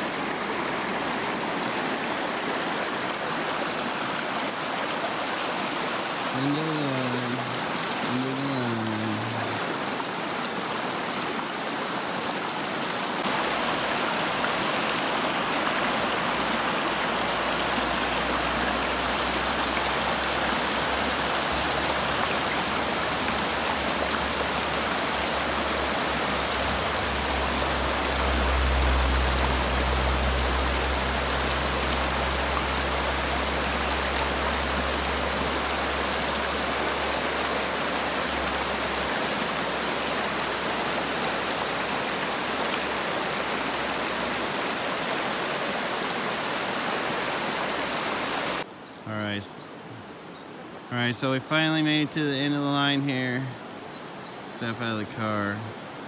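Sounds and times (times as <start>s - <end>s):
river rushing over rapids: 0.0s - 48.7s.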